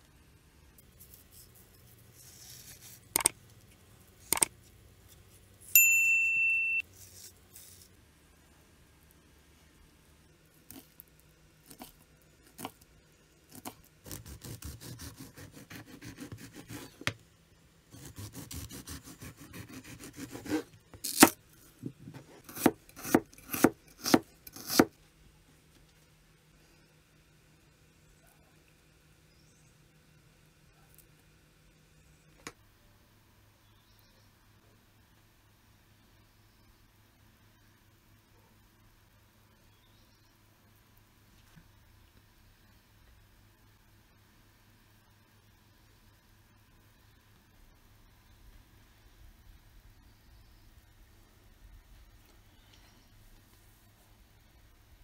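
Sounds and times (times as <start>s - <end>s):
steady beep: 5.8s - 6.8s.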